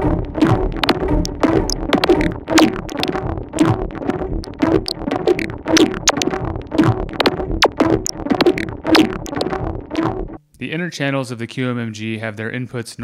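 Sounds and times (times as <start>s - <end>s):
synthesizer plucky electronic pattern: 0.0s - 10.4s.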